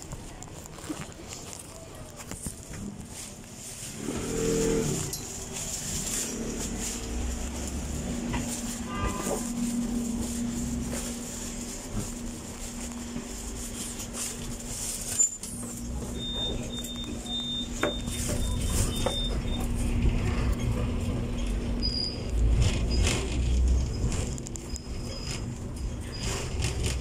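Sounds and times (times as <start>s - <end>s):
tram rumble and hum: 0.0s - 27.0s.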